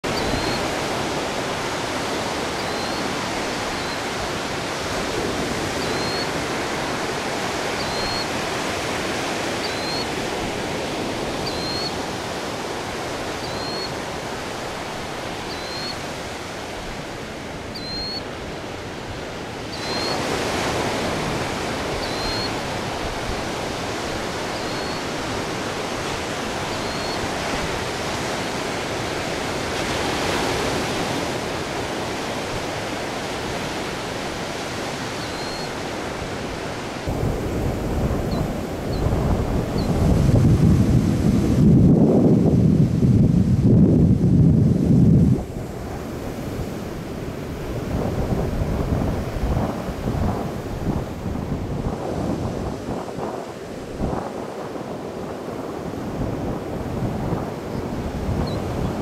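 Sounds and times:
surf with breaking waves: 0:00.0 - 0:59.0
bird alarm calls: 0:00.1 - 0:00.6, 0:02.6 - 0:03.0, 0:09.6 - 0:10.1, 0:11.4 - 0:11.9, 0:13.4 - 0:13.9, 0:15.5 - 0:16.0, 0:17.7 - 0:18.2, 0:22.0 - 0:22.5.

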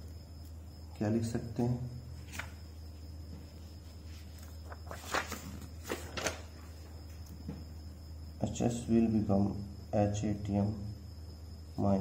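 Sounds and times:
steady low hum: 0:00.0 - 0:12.0
paper rustling and scraping: 0:02.2 - 0:02.6, 0:03.4 - 0:07.2.

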